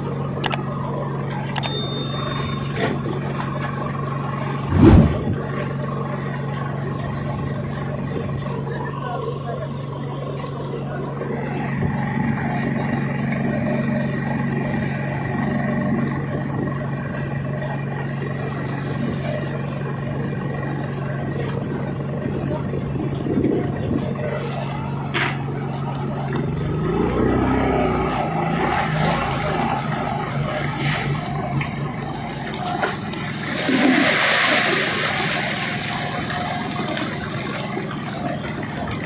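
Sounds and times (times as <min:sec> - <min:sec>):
boat engine running: 0:00.0 - 0:39.0
fish splashing at the surface: 0:33.2 - 0:38.5.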